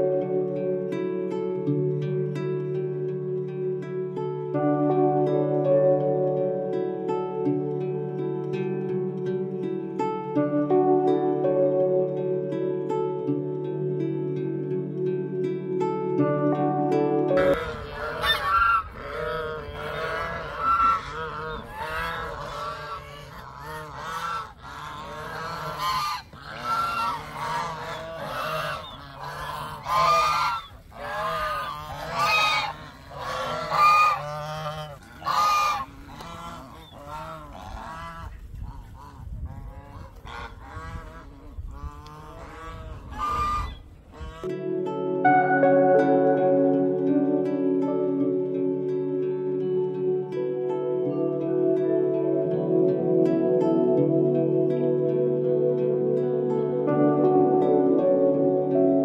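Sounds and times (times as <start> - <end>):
geese honking: 17.3 - 44.6.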